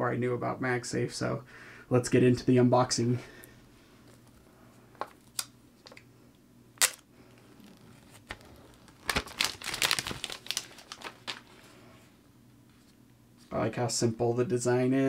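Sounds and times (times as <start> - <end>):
plastic shrink wrap crinkling: 6.8 - 11.8.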